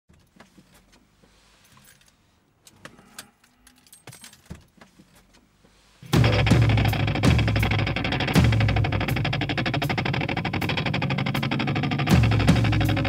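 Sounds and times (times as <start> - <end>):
keys jingling: 1.7 - 5.4
loud music with heavy beat: 6.0 - 13.0.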